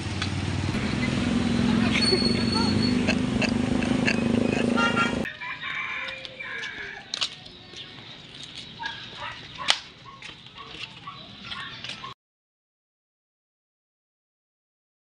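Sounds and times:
flip-flops slapping on concrete: 6.0 - 12.2.

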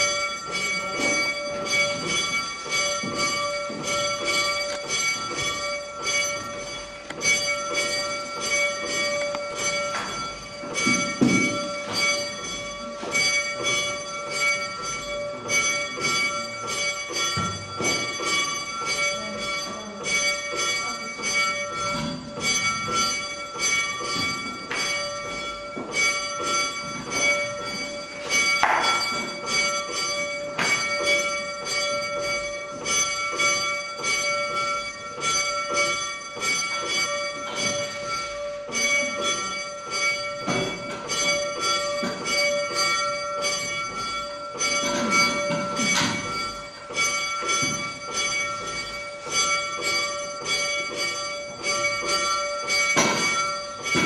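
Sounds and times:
church bell tolling: 0.0 - 54.0
sharp knocks: 28.5 - 29.6, 52.9 - 54.0.

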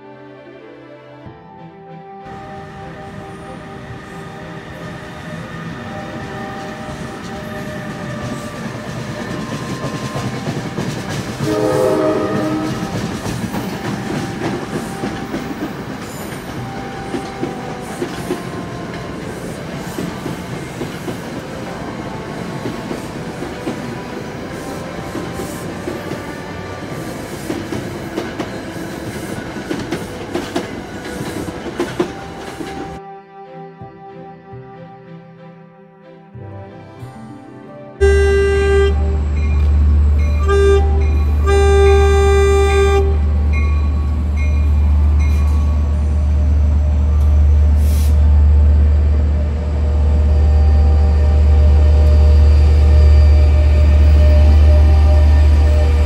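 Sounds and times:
train wheels clacking on rails: 5.3 - 33.0
train horn: 9.4 - 20.4, 38.0 - 56.0.

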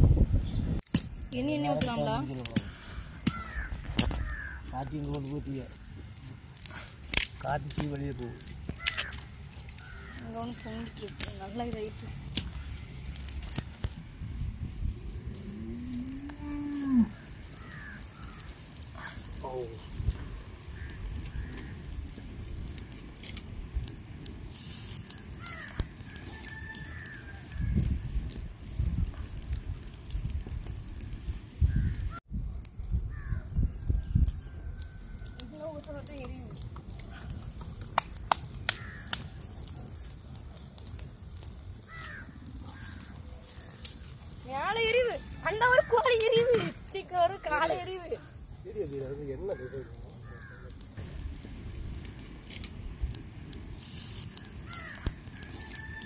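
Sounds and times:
wood fire crackling: 0.0 - 56.0
sharp pops: 0.8 - 14.0, 36.1 - 41.1
cow mooing: 15.4 - 17.2.

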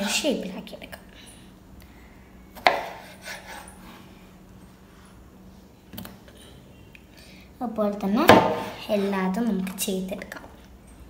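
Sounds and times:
faint steady hum: 0.0 - 11.0
knife slicing tomato: 2.6 - 3.8.

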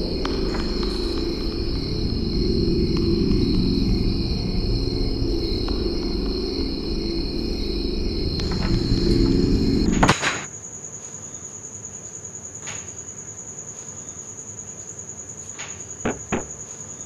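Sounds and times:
music: 0.0 - 10.1
crickets trilling: 0.0 - 17.0.

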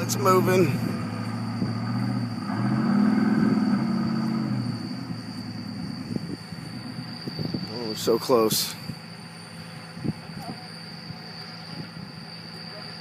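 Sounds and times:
engine straining and revving: 0.0 - 7.9.

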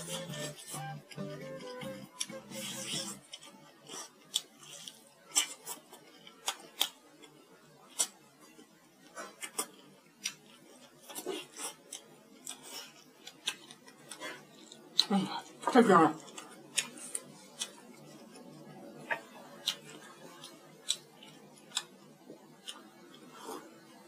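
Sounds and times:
lips smacking and sucking: 2.2 - 3.5.

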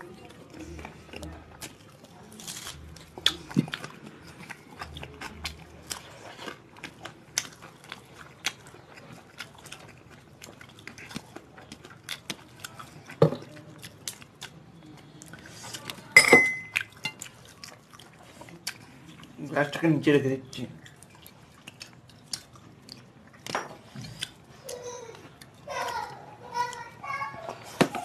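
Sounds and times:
chewing: 0.0 - 19.8, 20.7 - 28.0
steel bowl clanging on plate: 16.2 - 16.7.

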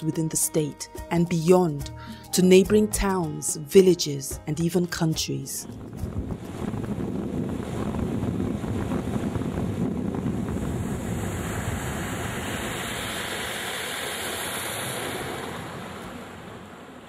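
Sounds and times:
motorboat under way: 5.7 - 17.0.

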